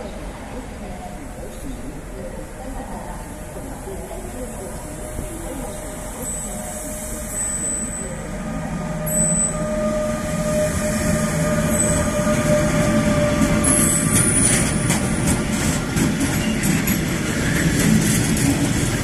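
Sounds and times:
electric locomotive whine: 3.2 - 19.0
high wheel squeals: 9.1 - 14.6.

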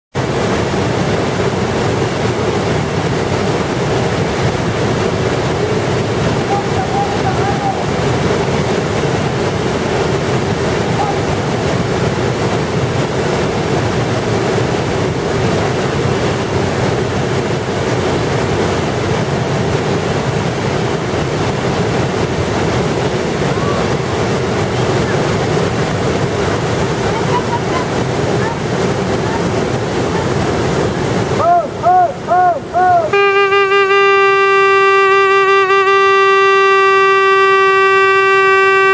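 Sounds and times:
whitewater rushing over rocks: 0.2 - 38.9
horn hoots and blast: 31.4 - 38.9.

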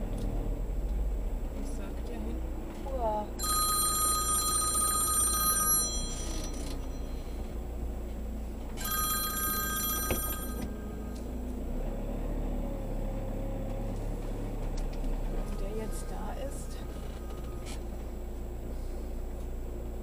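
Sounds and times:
telephone ringing: 3.4 - 7.2, 8.8 - 11.0
low hum: 9.8 - 20.0.

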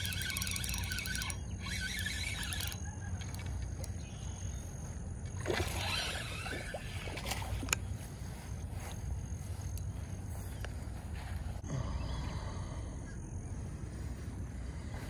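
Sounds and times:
fishing reel clicking: 0.0 - 4.4.

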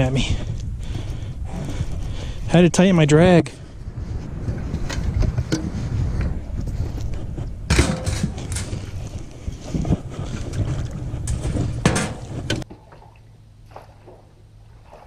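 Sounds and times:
wind buffeting microphone: 0.0 - 12.7
water splashing: 12.0 - 15.0.

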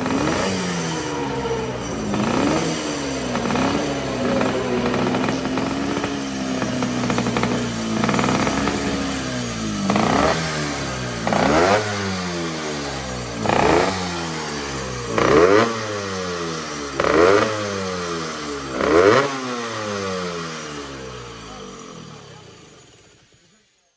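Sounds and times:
motorcycle throttle blips: 0.0 - 17.8
motorcycle engine idling: 0.0 - 23.9.

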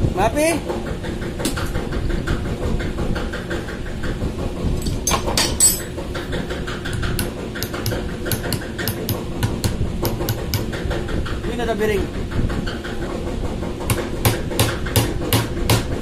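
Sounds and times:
tools knocking on metal: 4.8 - 11.5, 13.6 - 16.0.

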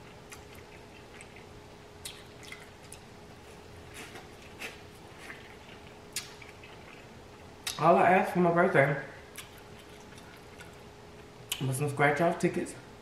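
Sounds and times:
food being chewed: 0.0 - 7.8, 9.3 - 11.6
wet eating sounds: 0.0 - 7.9, 9.3 - 11.7.

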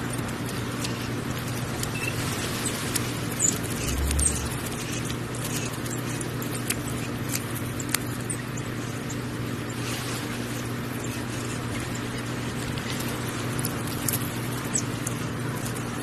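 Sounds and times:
steady low hum: 3.0 - 7.1
sharp little clicks: 3.4 - 4.8.

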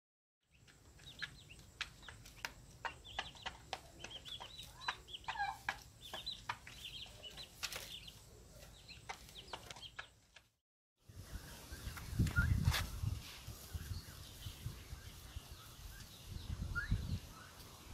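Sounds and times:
chicks peeping: 0.5 - 10.1.

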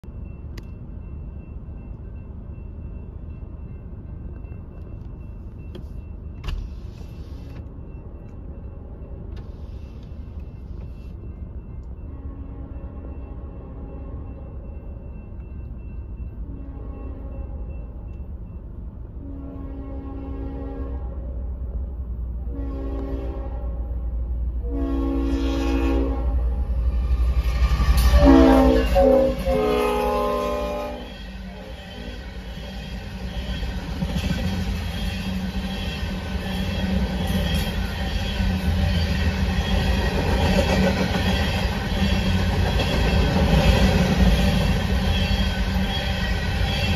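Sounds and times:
freight cars rumbling on rails: 0.0 - 46.9
locomotive air horn blasts: 19.2 - 21.3, 22.5 - 24.0, 24.6 - 26.6, 28.0 - 32.2.

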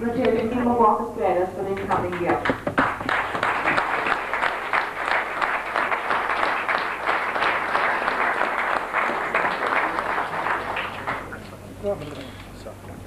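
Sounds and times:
audience applauding: 1.8 - 11.6.

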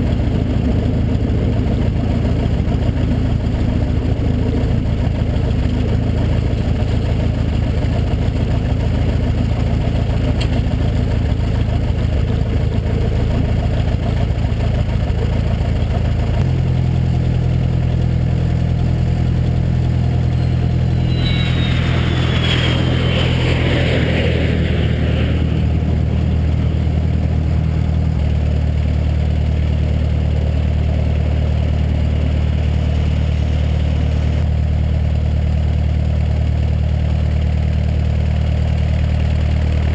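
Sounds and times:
light aircraft engine and propeller: 0.0 - 39.9
falling high whine: 20.2 - 28.2.

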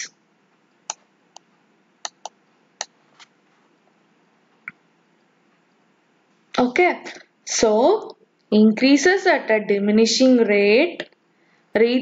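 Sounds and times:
computer mouse clicks: 2.1 - 3.0.

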